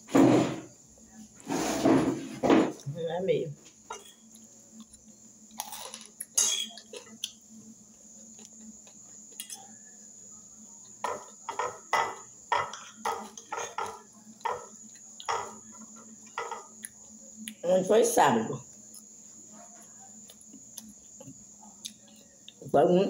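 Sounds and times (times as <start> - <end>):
chewing: 8.2 - 9.7, 18.8 - 22.6.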